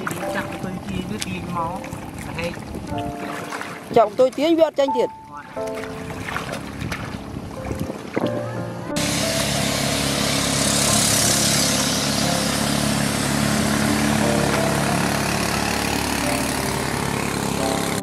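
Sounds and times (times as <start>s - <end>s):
small engine running: 8.9s - 18.0s.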